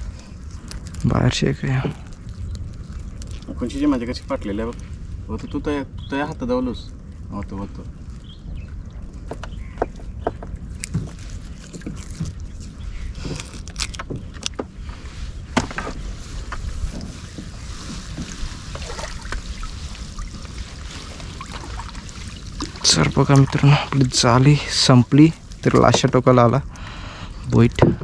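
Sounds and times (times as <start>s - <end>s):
steady low rumble: 0.0s - 28.0s
water sloshing: 1.8s - 4.0s, 6.9s - 26.8s.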